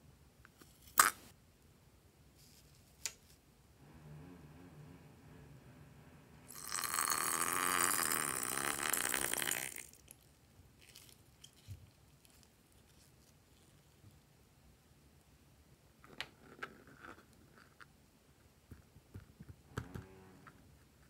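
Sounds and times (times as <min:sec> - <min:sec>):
slime sputtering from balloon: 0:06.5 - 0:09.9.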